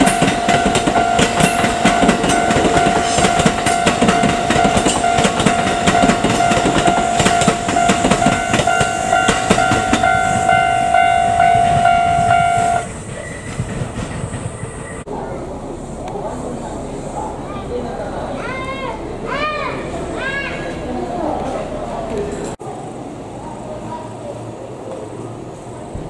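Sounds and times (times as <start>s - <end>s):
level crossing alarm dinging: 0.0s - 13.0s
train wheels clacking over joints: 0.0s - 15.1s.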